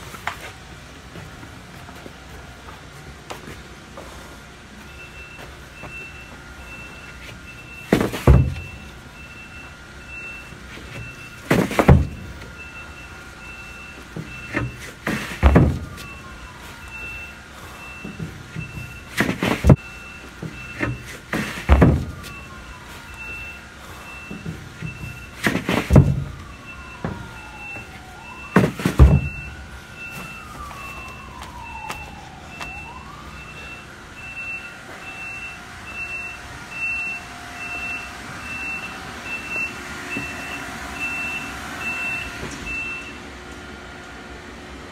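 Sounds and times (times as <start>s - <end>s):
machine beeping: 4.8s - 43.2s
drywall sheets thudding down: 7.9s - 8.7s, 11.4s - 12.3s, 14.2s - 16.0s, 18.1s - 19.8s, 20.4s - 22.4s, 24.4s - 26.4s, 28.5s - 29.5s.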